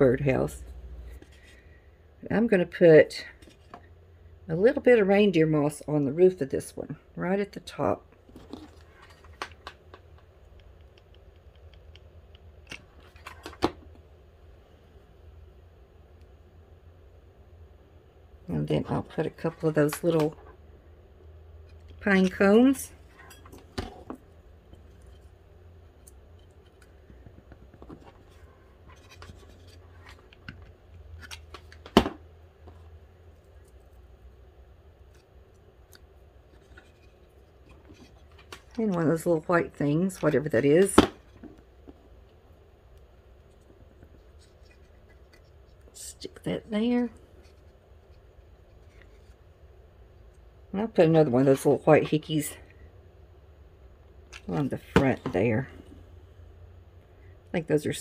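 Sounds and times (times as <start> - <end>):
faint low hum: 0.0 - 58.0
crafting handling rustles and taps: 8.2 - 14.0, 21.6 - 34.0, 35.0 - 39.3, 40.1 - 46.0.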